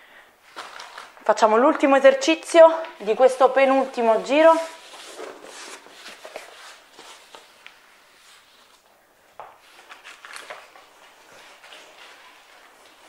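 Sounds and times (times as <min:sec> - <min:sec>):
rustling and handling noises: 0:00.4 - 0:13.0.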